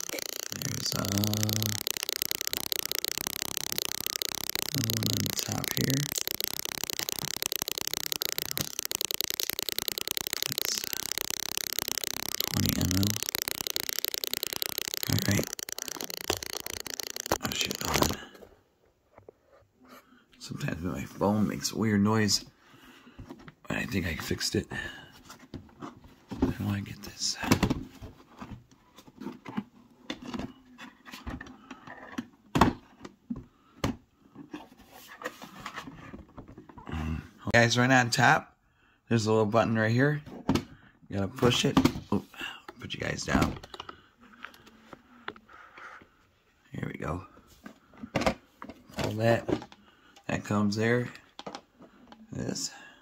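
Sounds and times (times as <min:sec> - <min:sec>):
electronic crackling buzz: 0:00.0 - 0:18.3.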